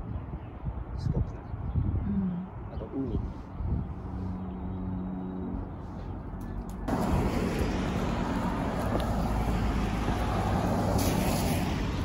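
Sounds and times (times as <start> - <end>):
wind on microphone: 0.0 - 4.7
traffic noise: 0.0 - 12.0.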